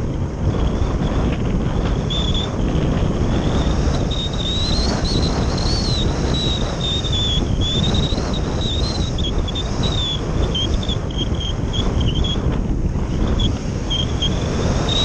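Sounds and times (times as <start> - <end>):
wind buffeting microphone: 0.0 - 15.0
thin high whistle: 2.0 - 2.5, 3.5 - 12.4, 13.3 - 15.0.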